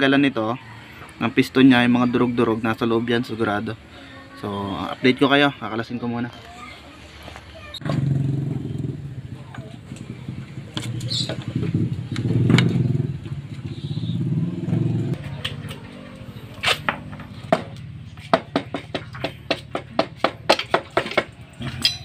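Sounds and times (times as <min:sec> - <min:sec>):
engine running: 0:07.8 - 0:18.2.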